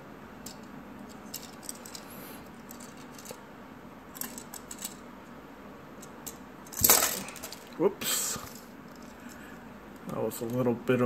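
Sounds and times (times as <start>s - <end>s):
plastic parts clicking: 4.2s - 5.0s.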